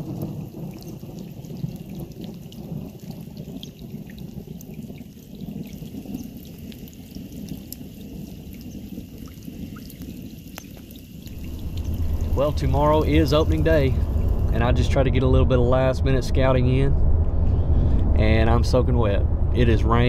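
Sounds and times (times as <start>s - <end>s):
rolling thunder rumble: 0.0s - 10.4s, 11.2s - 20.0s
steady rain falling: 0.0s - 16.6s
drops ticking close by: 5.7s - 14.6s.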